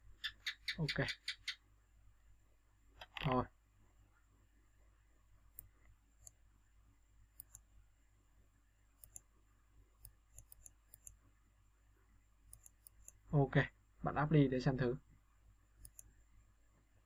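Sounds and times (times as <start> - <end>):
computer mouse clicks: 7.4 - 7.7, 9.0 - 9.3, 10.0 - 11.2, 12.5 - 13.2, 15.8 - 16.2.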